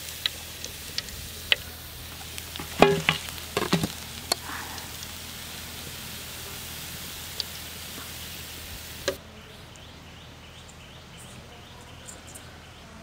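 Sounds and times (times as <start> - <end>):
hot oil sizzling: 0.0 - 9.2
skimmer clinking on pan: 2.5 - 4.0.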